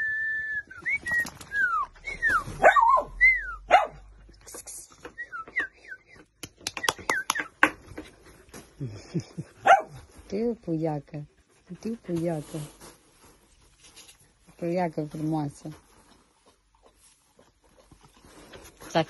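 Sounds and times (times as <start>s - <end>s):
puppy whining and yipping: 1.4s - 4.0s.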